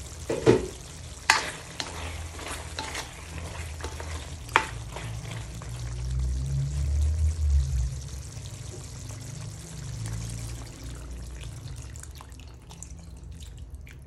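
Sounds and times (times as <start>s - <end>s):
meat sizzling in a wok: 0.0s - 11.6s
spatula scraping a pan: 0.3s - 6.0s.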